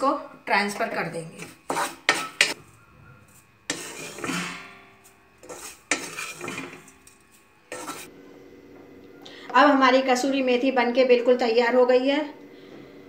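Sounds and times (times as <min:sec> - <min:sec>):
wooden spatula scraping pan: 0:01.3 - 0:02.6, 0:03.3 - 0:08.1
utensils rattling: 0:03.7 - 0:08.1.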